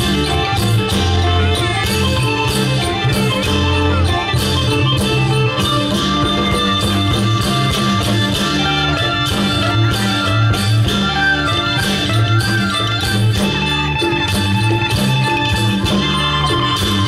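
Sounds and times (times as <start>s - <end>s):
plucked-string folk melody: 0.0s - 17.0s
steady beat: 0.0s - 17.0s.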